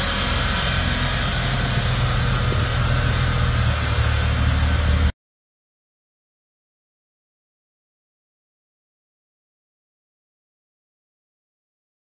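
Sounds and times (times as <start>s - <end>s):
bus diesel engine droning: 0.0s - 5.1s.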